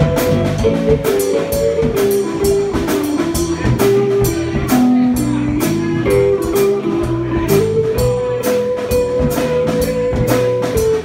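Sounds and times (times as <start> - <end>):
drum kit beat: 0.0 - 11.0
electric guitar line: 0.0 - 11.0.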